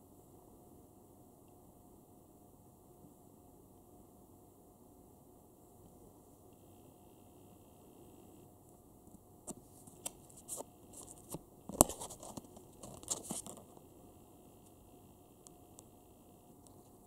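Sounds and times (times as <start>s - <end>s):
stickers peeled off backing: 9.9s - 13.7s.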